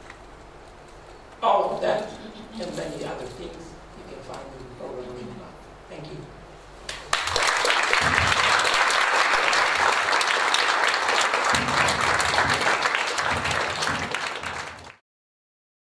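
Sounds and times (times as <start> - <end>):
audience applauding: 6.9 - 15.0.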